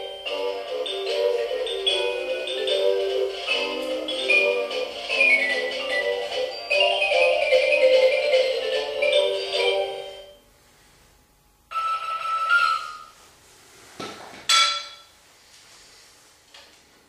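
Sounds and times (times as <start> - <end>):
tinkling melodic tune: 0.0 - 10.4
bright tone: 0.0 - 10.5, 11.7 - 13.2.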